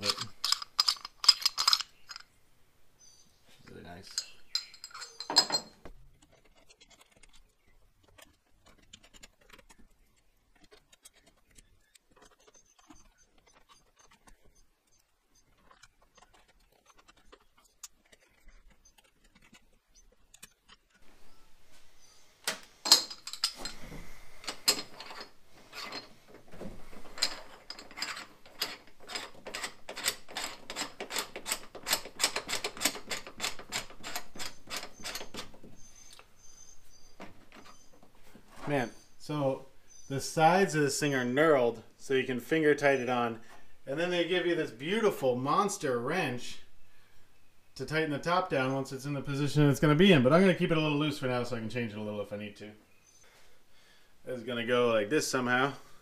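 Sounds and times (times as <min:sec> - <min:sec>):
small metal parts clicking: 0:00.0 - 0:02.3, 0:04.0 - 0:21.1, 0:22.5 - 0:23.8, 0:24.4 - 0:26.1, 0:27.0 - 0:35.5.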